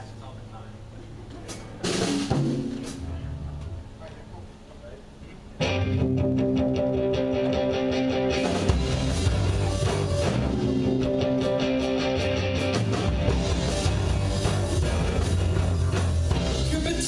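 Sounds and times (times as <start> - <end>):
live rock band playing: 1.5 - 3.8, 5.6 - 17.0
electric guitar chords: 5.6 - 17.0.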